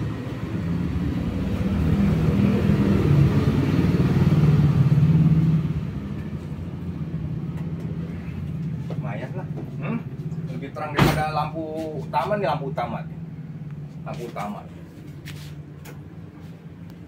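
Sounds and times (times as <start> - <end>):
motor vehicle engine running: 0.0 - 17.0.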